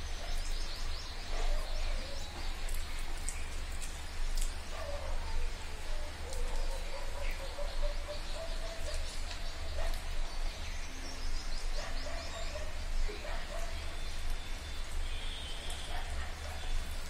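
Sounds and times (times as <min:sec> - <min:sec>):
bird chirping: 0:00.0 - 0:05.4.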